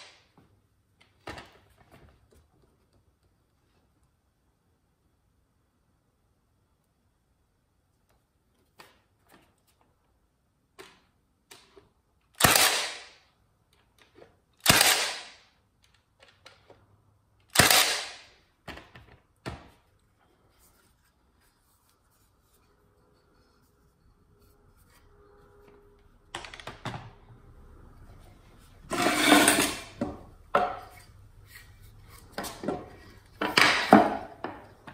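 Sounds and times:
nailer firing into wood: 0:12.4 - 0:13.2, 0:14.6 - 0:15.4, 0:17.5 - 0:18.4, 0:33.4 - 0:34.4
tools and wood clattering: 0:28.9 - 0:34.9.

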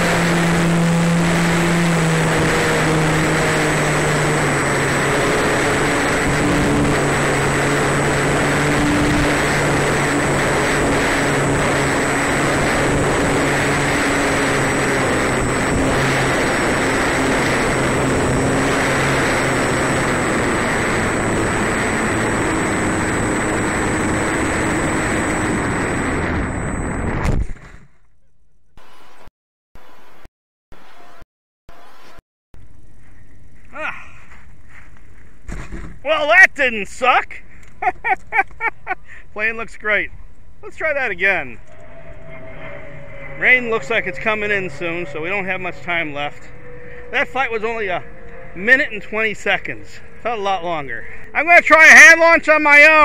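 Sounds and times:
electric model plane motor hum: 0:00.0 - 0:27.3, 0:41.6 - 0:50.3.

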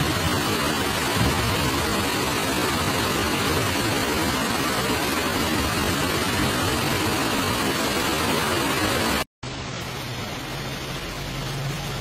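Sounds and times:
heavy rain on street: 0:00.0 - 0:12.0.

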